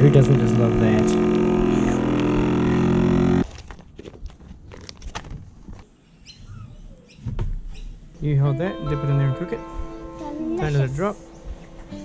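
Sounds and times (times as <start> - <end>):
vacuum pump humming: 0.0 - 3.4.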